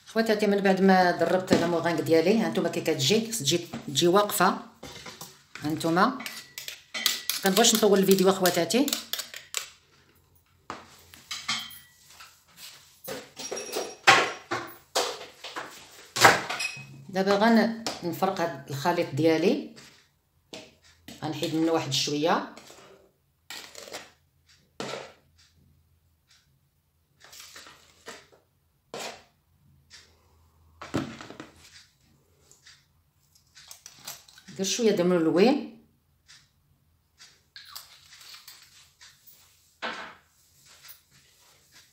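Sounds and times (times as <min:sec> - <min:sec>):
spoon scraping plastic bowl: 0:01.2 - 0:10.2, 0:17.4 - 0:25.6, 0:27.2 - 0:29.4, 0:37.2 - 0:39.2.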